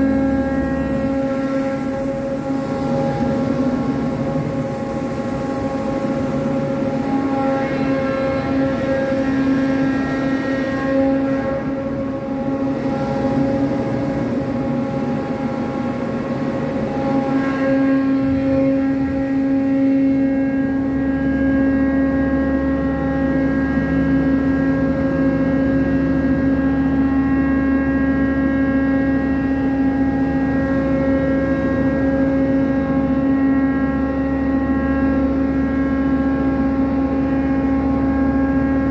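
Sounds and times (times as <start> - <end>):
crane machinery humming: 0.0 - 38.9
deeper hum: 0.0 - 38.9.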